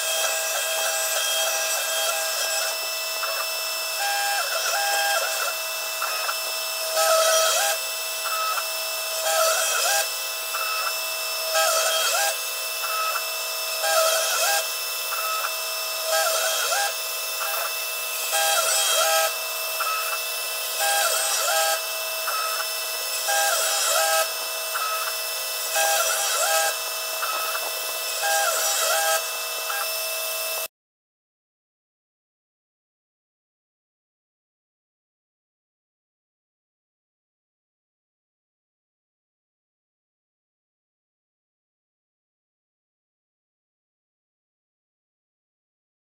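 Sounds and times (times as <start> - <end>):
end mill rasping through wood: 0.0 - 30.7
router spindle whine: 0.0 - 30.7.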